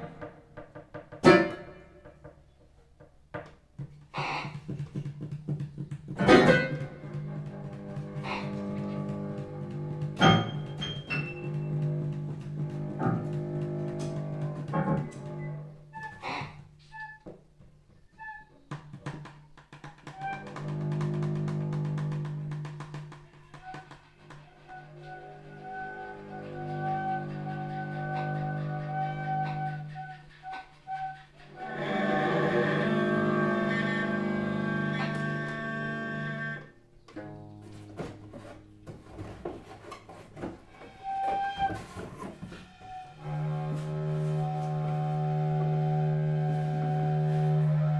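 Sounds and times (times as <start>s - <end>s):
plucked notes: 1.2s - 2.2s, 4.9s - 15.5s, 31.7s - 40.8s
improvised keyboard bass and cello music: 4.0s - 17.2s, 18.1s - 30.4s, 31.3s - 47.9s.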